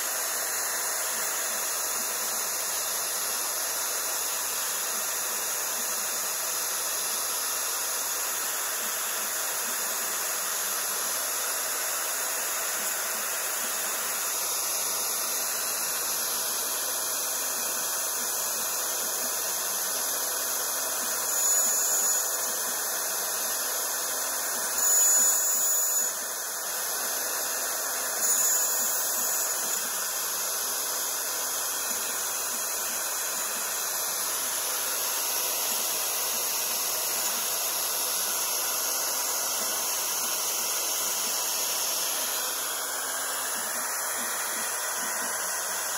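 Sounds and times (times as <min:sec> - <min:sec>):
router spindle milling aluminium: 0:20.1 - 0:45.9.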